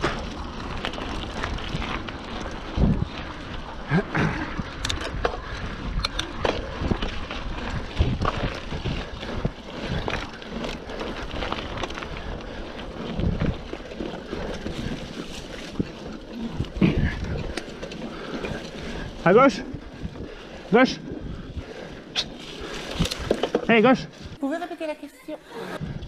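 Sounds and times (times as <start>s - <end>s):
bike tyre and frame rattle: 0.0s - 24.9s, 25.8s - 26.0s
bike knocks and thumps over bumps: 4.2s - 20.3s, 22.7s - 23.9s.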